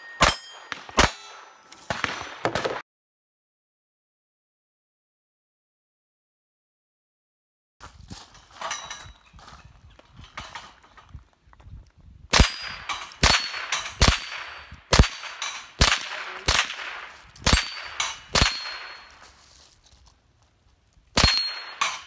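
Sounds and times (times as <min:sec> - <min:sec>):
metallic ring of steel plate: 0:00.0 - 0:01.7, 0:17.4 - 0:19.4, 0:21.2 - 0:22.0
rifle shots: 0:00.2 - 0:02.8, 0:12.3 - 0:19.2, 0:21.2 - 0:22.0.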